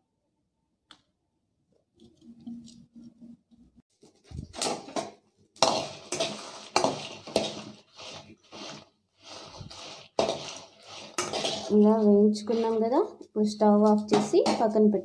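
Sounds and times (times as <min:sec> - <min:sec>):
spoon scraping and stirring in pan: 0:04.4 - 0:14.8.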